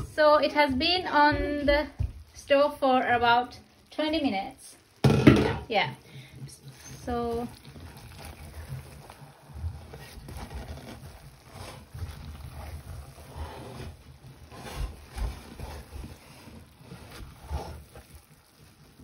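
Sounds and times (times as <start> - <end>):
wooden spatula stirring rice in pot: 0.0 - 19.0
spatula scraping metal pot: 5.5 - 19.0.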